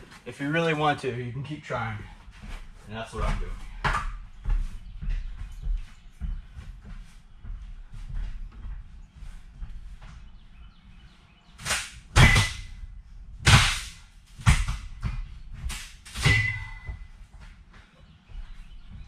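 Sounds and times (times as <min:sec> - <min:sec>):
metal seat frames banging and clanking: 0:14.4 - 0:17.1.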